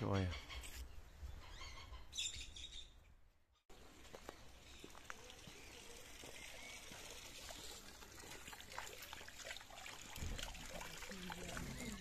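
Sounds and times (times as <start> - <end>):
faint trickling water: 3.7 - 12.0.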